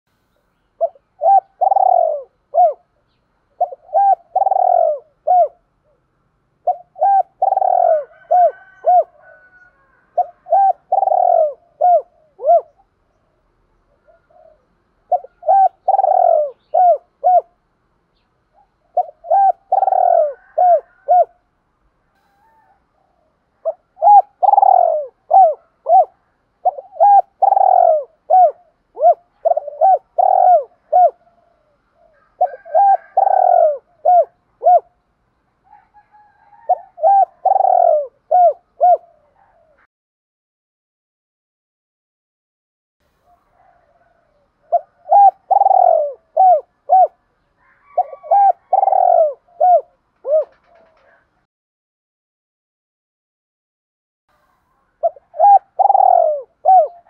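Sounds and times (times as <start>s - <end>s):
dove cooing: 0.8s - 12.9s, 13.9s - 17.6s, 18.5s - 21.4s, 22.2s - 35.0s, 35.7s - 39.9s, 43.2s - 51.5s, 54.4s - 57.0s.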